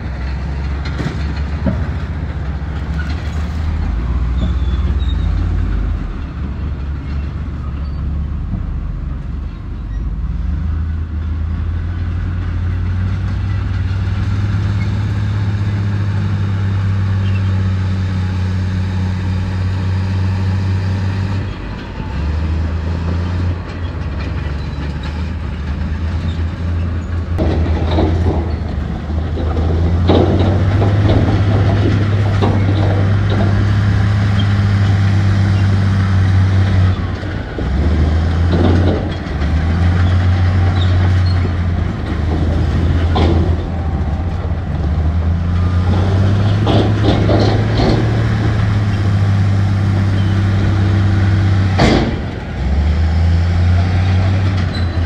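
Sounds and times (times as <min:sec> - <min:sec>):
bulldozer diesel engine running: 0:00.0 - 0:55.0
rock and steel clattering: 0:21.4 - 0:55.0.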